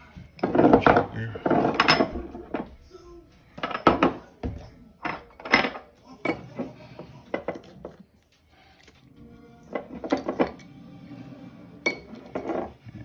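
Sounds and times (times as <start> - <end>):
utensil clinking against metal bowl: 11.8 - 12.7.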